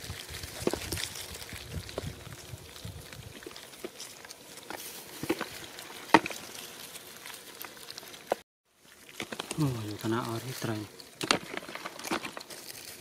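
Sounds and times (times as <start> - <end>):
hands rustling straw: 0.0 - 13.0
fish slapping on dry mud: 9.0 - 9.8, 11.0 - 13.0.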